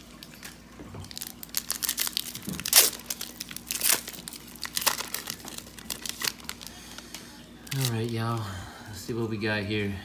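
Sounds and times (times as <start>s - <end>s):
foil wrapper tearing and crinkling: 1.0s - 8.5s.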